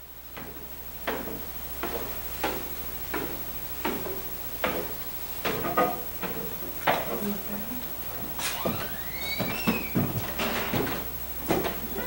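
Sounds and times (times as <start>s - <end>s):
footsteps on wooden stairs: 0.3s - 7.2s, 8.1s - 12.0s.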